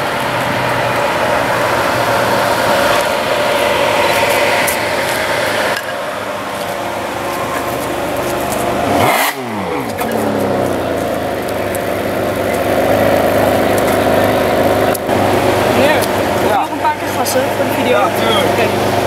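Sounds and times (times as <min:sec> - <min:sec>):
car engine low rumble: 0:00.0 - 0:19.0
engine quick rev: 0:08.8 - 0:10.9.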